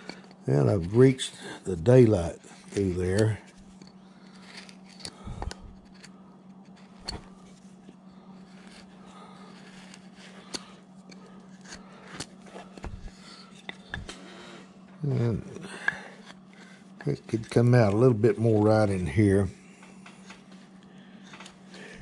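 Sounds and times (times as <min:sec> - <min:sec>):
faint steady hum: 0:00.0 - 0:22.0
carving gouge scraping wood: 0:08.4 - 0:14.1.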